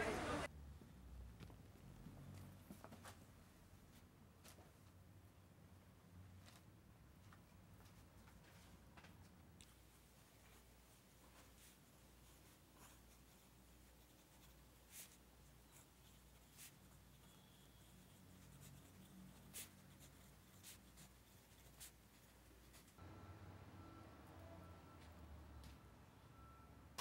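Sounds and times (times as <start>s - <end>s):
pen scratching on paper: 12.2s - 23.0s.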